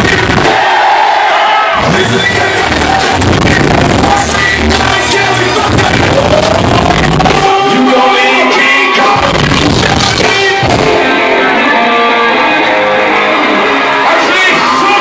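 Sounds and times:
person singing: 0:01.8 - 0:13.3
electric guitar: 0:08.4 - 0:15.0.

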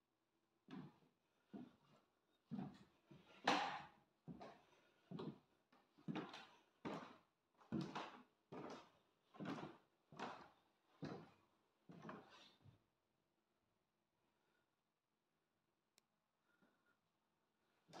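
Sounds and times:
footsteps on wooden floorboards: 0:02.5 - 0:02.8, 0:04.3 - 0:05.4, 0:06.0 - 0:10.4, 0:11.0 - 0:12.4.

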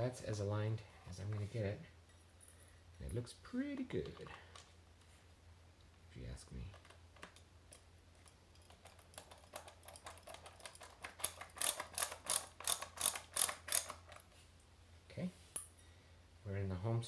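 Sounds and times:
ratcheting screwdriver clicking: 0:08.6 - 0:14.2.

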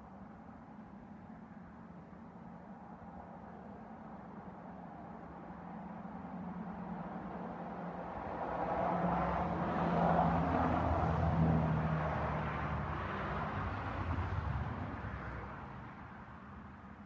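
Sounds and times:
vehicle passing by: 0:08.4 - 0:16.0.

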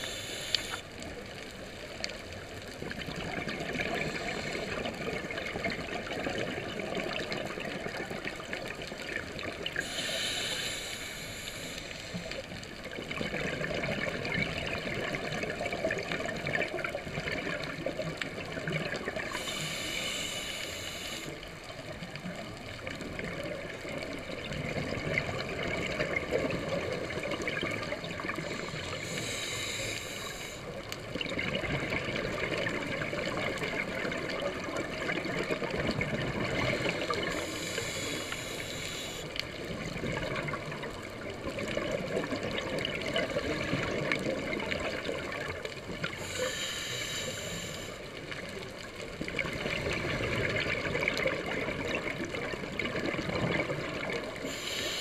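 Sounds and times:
diver breathing through regulator: 0:00.0 - 0:00.9, 0:09.8 - 0:12.3, 0:19.3 - 0:21.4, 0:28.4 - 0:30.7, 0:36.6 - 0:39.4, 0:46.2 - 0:48.0, 0:54.5 - 0:55.0
regulator hiss: 0:00.0 - 0:01.1, 0:09.7 - 0:12.6, 0:19.2 - 0:21.6, 0:28.4 - 0:30.9, 0:36.6 - 0:39.7, 0:46.1 - 0:48.6, 0:54.3 - 0:55.0
bubbling of exhaled air: 0:24.2 - 0:48.1, 0:49.1 - 0:55.0.

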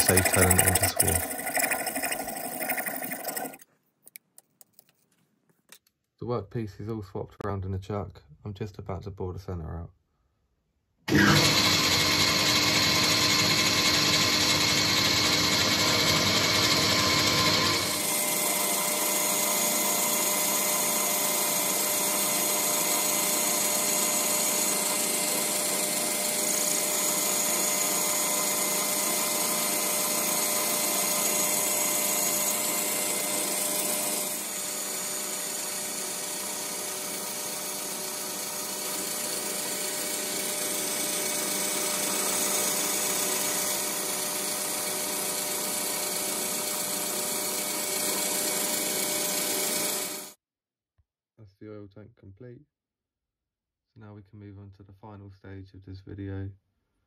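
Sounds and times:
lathe machining metal: 0:11.1 - 0:50.3.

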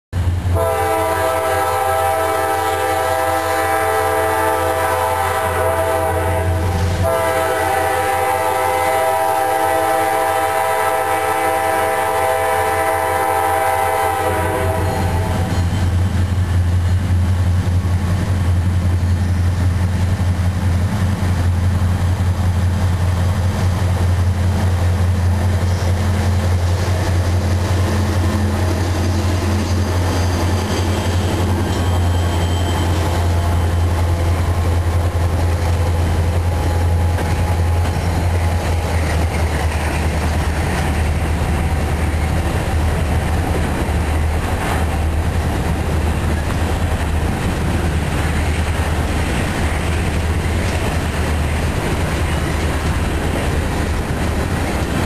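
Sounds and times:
train rolling rumble: 0:00.1 - 0:55.0
locomotive engine drone: 0:00.2 - 0:55.0
locomotive air horn blasts: 0:00.5 - 0:15.5, 0:31.3 - 0:35.1.

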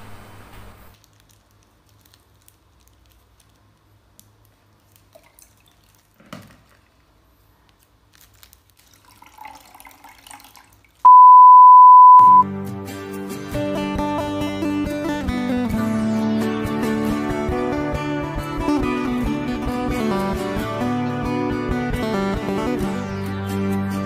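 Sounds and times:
loud steady beep: 0:11.1 - 0:12.4
acoustic guitar music: 0:12.2 - 0:24.0.

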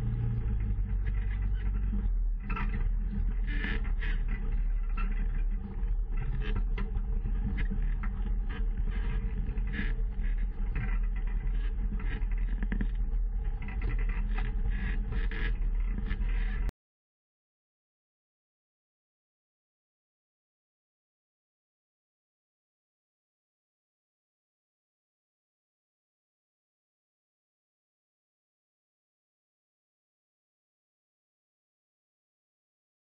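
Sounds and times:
rattles and clicks: 0:00.0 - 0:16.7
vehicle engine drone: 0:00.0 - 0:16.7.

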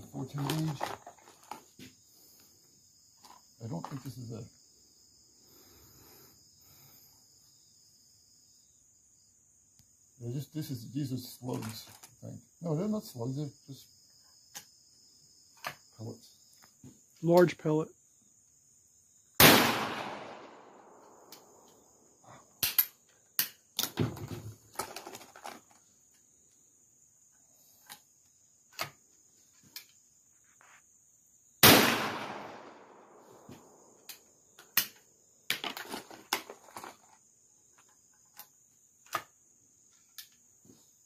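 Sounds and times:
insects droning: 0:00.0 - 0:41.0
gun handling clicks and knocks: 0:00.2 - 0:02.0, 0:03.2 - 0:04.1, 0:11.5 - 0:12.2, 0:15.5 - 0:15.9, 0:22.6 - 0:26.3, 0:27.8 - 0:30.0, 0:33.4 - 0:40.5
shotgun shots echoing: 0:19.4 - 0:21.2, 0:31.6 - 0:33.2.

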